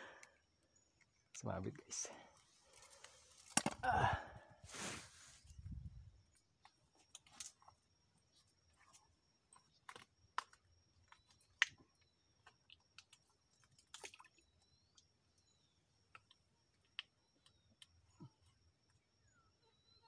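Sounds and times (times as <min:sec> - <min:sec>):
faint chirps: 0:14.2 - 0:20.0.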